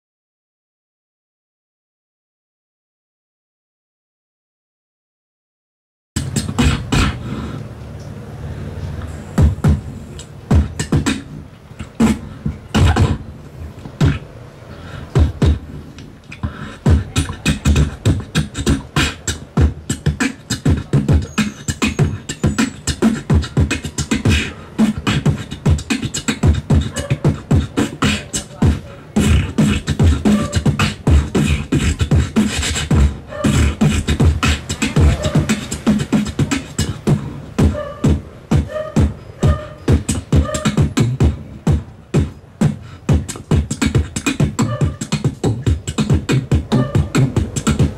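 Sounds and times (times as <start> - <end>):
person beatboxing: 6.2 - 47.9.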